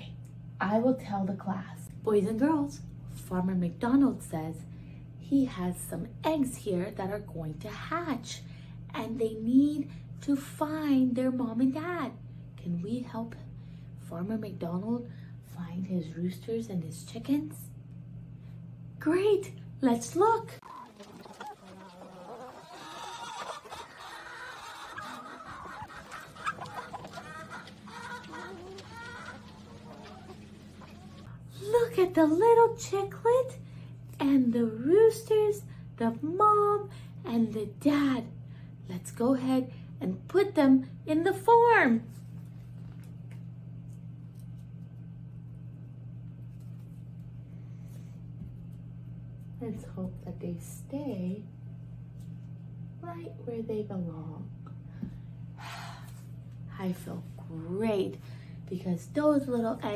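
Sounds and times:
steady low hum: 0.0s - 59.9s
chickens clucking: 20.5s - 31.3s.

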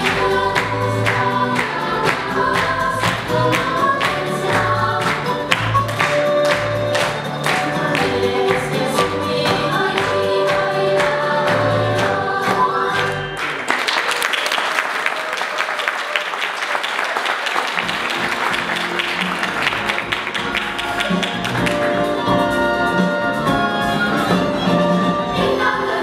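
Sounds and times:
audience applause: 0.0s - 8.7s, 13.0s - 22.2s
live folk dance music: 0.0s - 14.1s, 17.6s - 26.0s.

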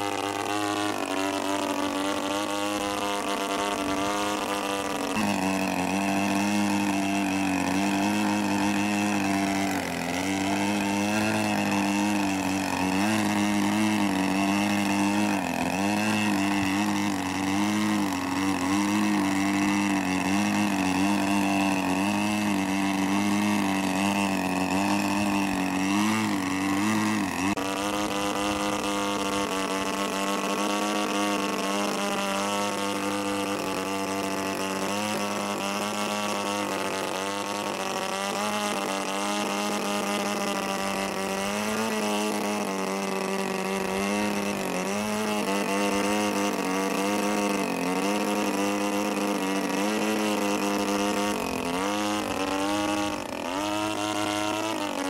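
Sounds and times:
model plane engine running: 0.0s - 55.0s.

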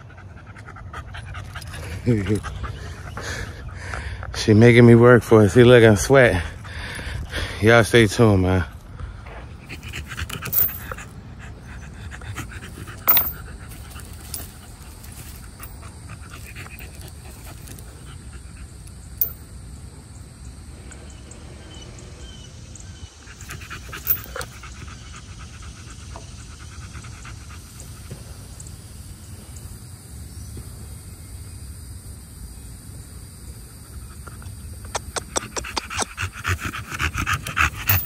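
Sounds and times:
dog panting rapidly: 9.3s - 18.7s, 34.1s - 38.0s.

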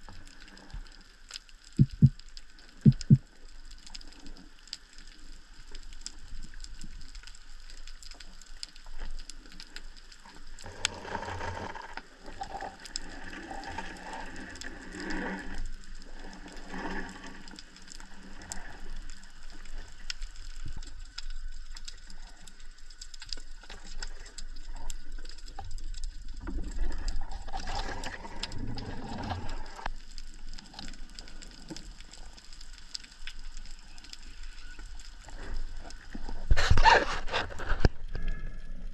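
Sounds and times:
underwater water rushing: 1.8s - 3.4s, 23.6s - 34.6s.

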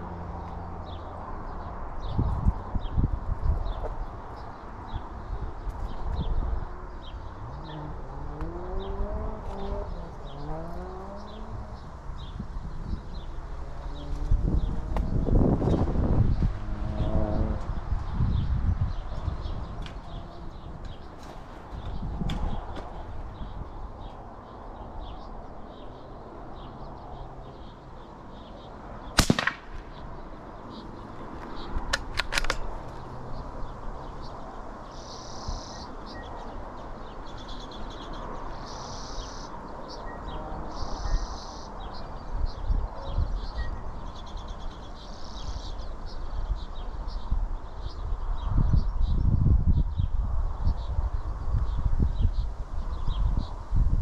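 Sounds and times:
rifle shot: 29.2s - 30.0s
rifle bolt clicks: 31.8s - 32.7s.

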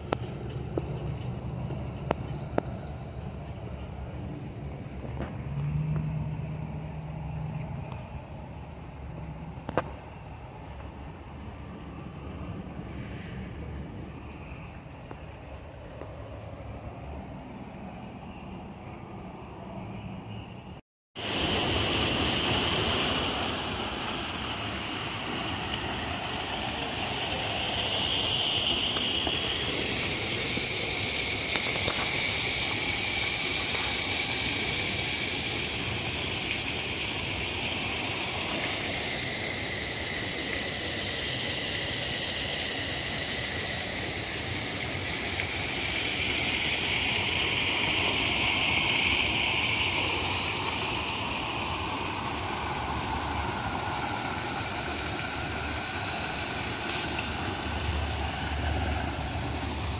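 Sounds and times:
waterfall pouring into pond: 21.2s - 59.9s.

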